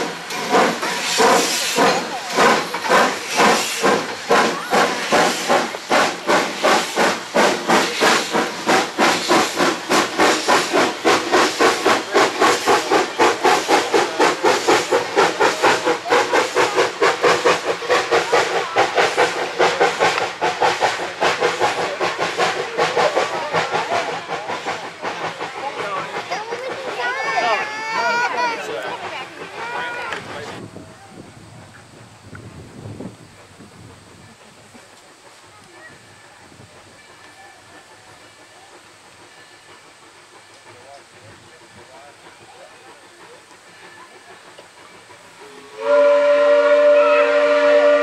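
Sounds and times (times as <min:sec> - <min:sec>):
steam locomotive chuffing: 0:00.0 - 0:48.0.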